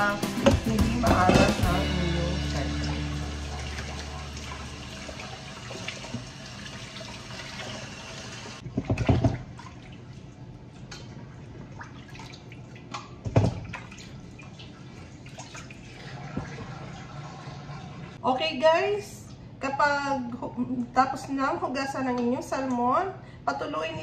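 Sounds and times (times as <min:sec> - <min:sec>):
faucet water running: 0:00.0 - 0:08.6, 0:13.8 - 0:18.2
water dripping: 0:02.4 - 0:08.6.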